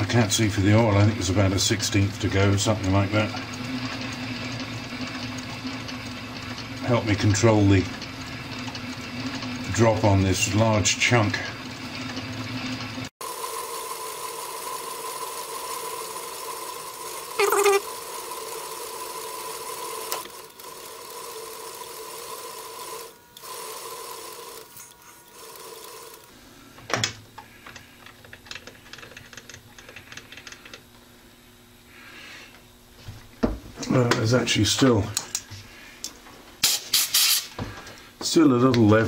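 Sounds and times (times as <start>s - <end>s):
metal lathe whining: 0.0s - 26.3s.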